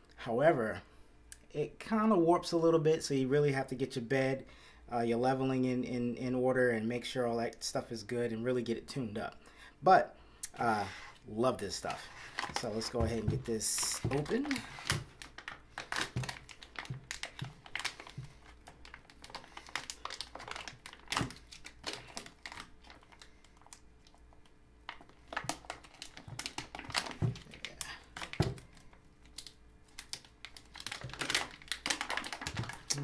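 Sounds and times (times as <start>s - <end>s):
plastic bag crinkling: 11.7s - 33.0s.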